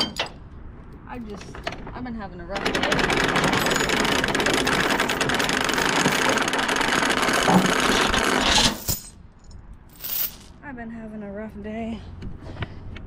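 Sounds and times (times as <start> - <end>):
chain links rattling and clinking: 2.8 - 6.6, 7.2 - 10.6.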